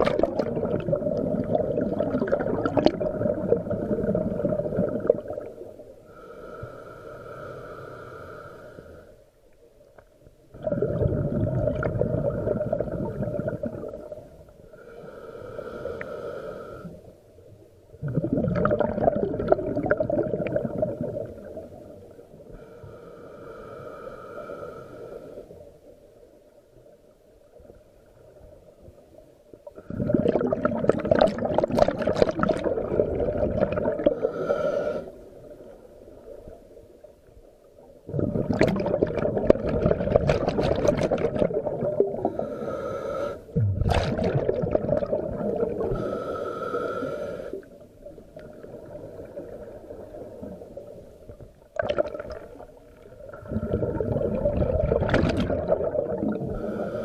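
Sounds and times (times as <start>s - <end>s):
bubbling exhalations underwater: 0.0s - 5.6s, 10.5s - 14.2s, 18.0s - 21.7s, 29.8s - 34.2s, 38.1s - 42.4s, 43.6s - 46.0s, 51.8s - 52.6s, 53.2s - 56.8s
hissing regulator inhalations: 6.1s - 9.2s, 14.7s - 17.0s, 22.5s - 25.8s, 34.1s - 35.4s, 42.2s - 43.6s, 45.7s - 47.8s, 56.3s - 57.0s.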